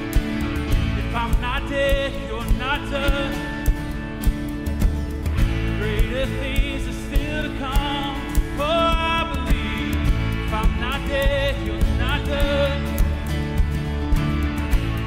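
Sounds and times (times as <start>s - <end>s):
bending lead melody: 0.0s - 15.0s
live band playing worship song: 0.0s - 15.0s.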